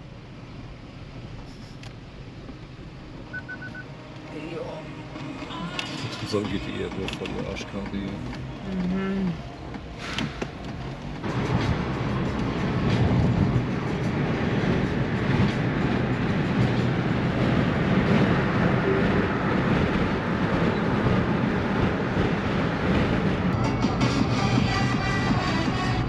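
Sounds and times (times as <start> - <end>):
car engine hum: 0.0 - 26.0
car road and tyre noise: 0.0 - 26.0.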